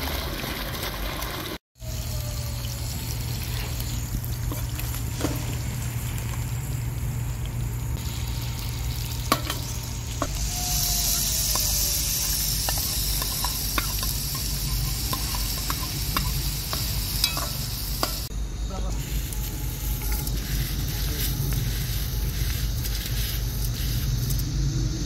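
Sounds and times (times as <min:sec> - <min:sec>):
hot oil sizzling in a pot: 0:00.0 - 0:25.0.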